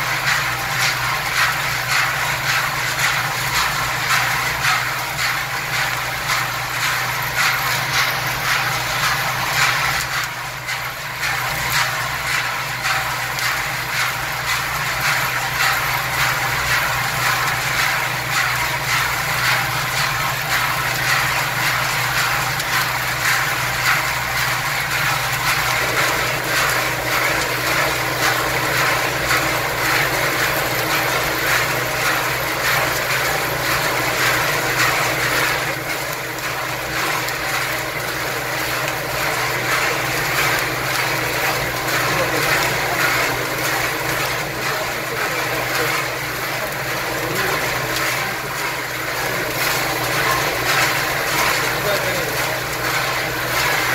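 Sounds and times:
nuts rattling in rotating drum: 0:00.0 - 0:53.9.

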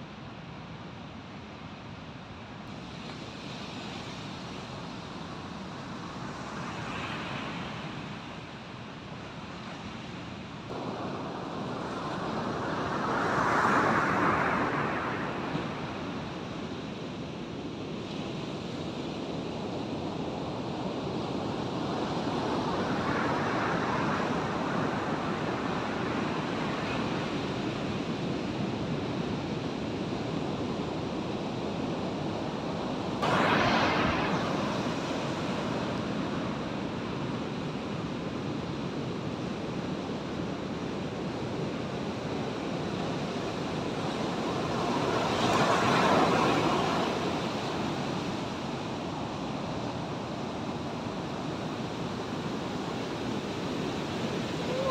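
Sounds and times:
ocean surf breaking: 0:33.1 - 0:37.4, 0:43.4 - 0:48.8.

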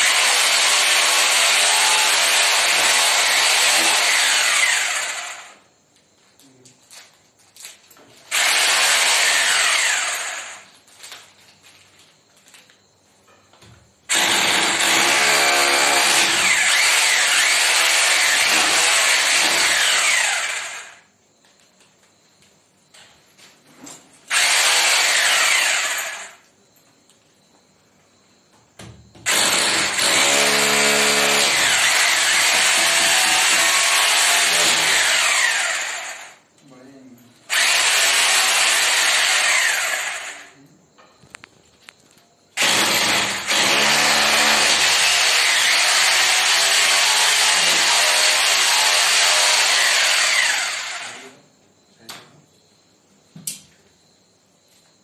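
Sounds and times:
electric drill boring into wall: 0:00.0 - 0:05.6, 0:08.3 - 0:10.7, 0:14.1 - 0:21.0, 0:24.3 - 0:26.4, 0:29.2 - 0:36.4, 0:37.5 - 0:40.5, 0:42.6 - 0:51.3.

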